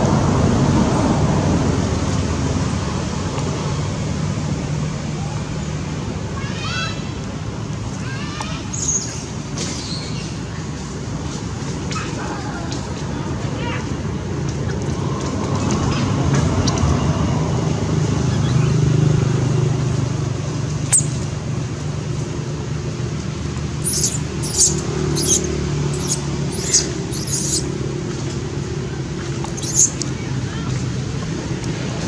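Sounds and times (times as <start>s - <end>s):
short high-pitched chirps: 23.8s - 27.6s.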